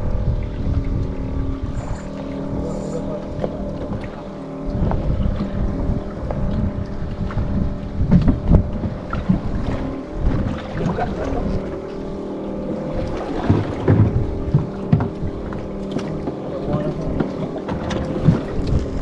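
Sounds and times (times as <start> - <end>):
boat engine running: 0.0 - 19.0
wind on microphone: 0.0 - 19.0.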